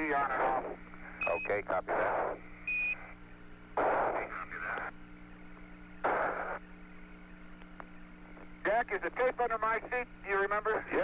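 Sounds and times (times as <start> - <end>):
radio static bursts: 0.0 - 5.0, 5.8 - 7.3
low hum: 0.0 - 11.0
short radio beep: 1.2 - 1.6.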